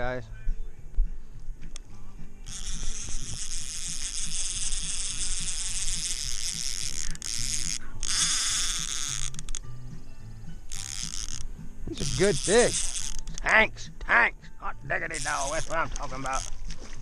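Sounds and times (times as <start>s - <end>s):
fishing reel whirring: 2.4s - 13.7s, 15.0s - 17.0s.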